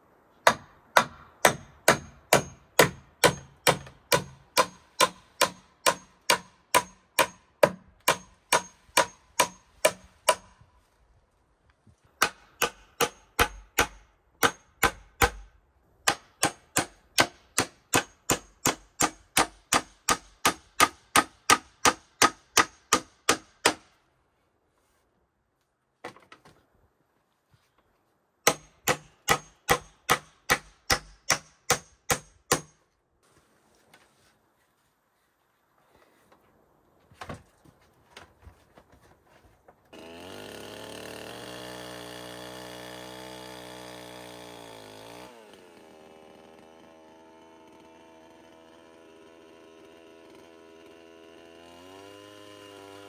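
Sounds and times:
hammer striking wooden poles: 0.4 - 10.7, 12.2 - 24.0, 28.4 - 33.0.

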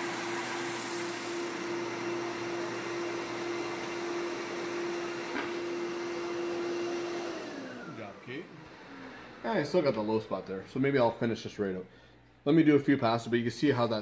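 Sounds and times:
drum sander humming and hissing: 0.0 - 10.4.

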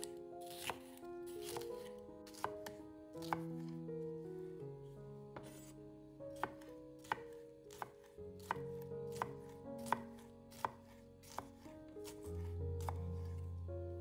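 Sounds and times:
knife cutting on cutting board: 0.0 - 3.7, 5.4 - 5.8, 6.4 - 13.4
background music sustained notes: 0.0 - 14.0.

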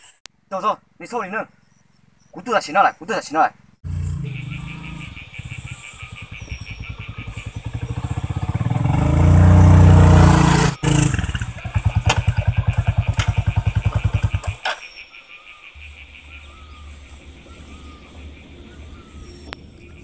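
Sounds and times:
motorcycle engine chugging: 3.8 - 14.7.

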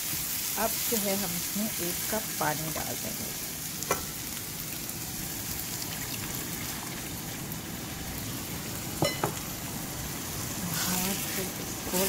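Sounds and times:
oil sizzling and crackling: 0.0 - 12.0
water poured into hot pan: 4.4 - 7.4.

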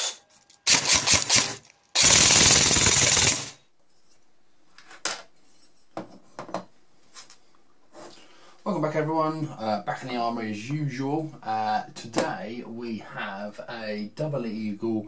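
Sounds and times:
automatic gunfire burst: 0.6 - 3.6.

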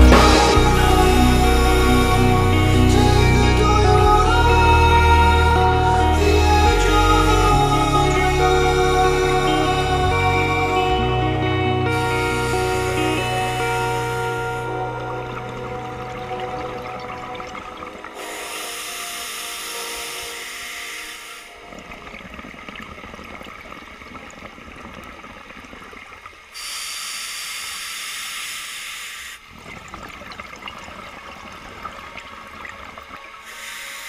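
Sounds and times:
exhaled bubbles rumbling: 14.6 - 18.6, 21.5 - 26.5, 29.5 - 33.5
regulator hissing inhalation: 18.2 - 21.6, 33.5 - 34.0.

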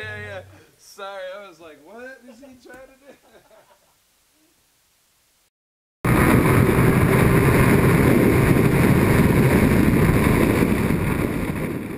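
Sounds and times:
wind rush on microphone: 6.1 - 11.9.

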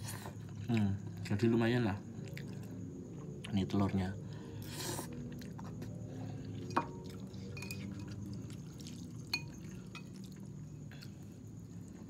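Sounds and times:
low steady hum: 0.0 - 12.0
fork and spoon clinking on bowl: 6.7 - 8.4, 9.2 - 10.3.

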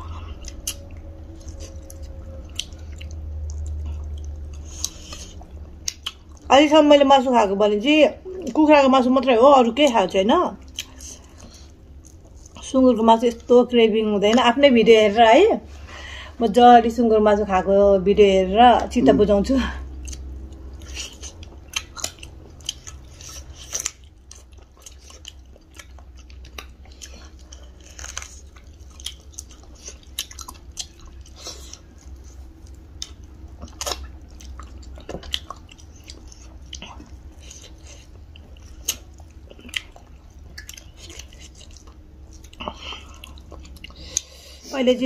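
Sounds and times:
people chewing and eating: 0.0 - 6.5, 9.4 - 13.6, 19.6 - 44.7
steady low hum: 0.0 - 45.0.

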